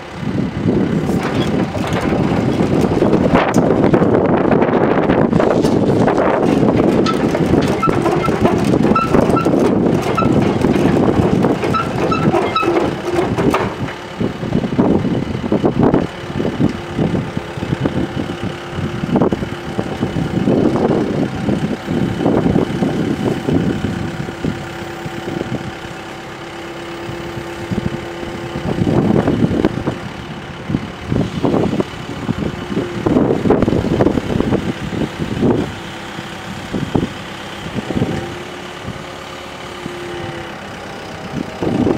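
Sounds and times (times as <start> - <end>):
excavator diesel engine running: 0.0 - 41.9.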